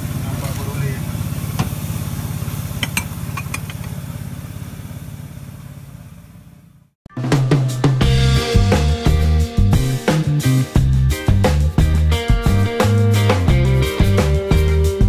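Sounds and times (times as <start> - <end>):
small engine running: 0.0 - 6.9
plates clinking: 2.8 - 3.9
music with drum beat: 7.1 - 15.0.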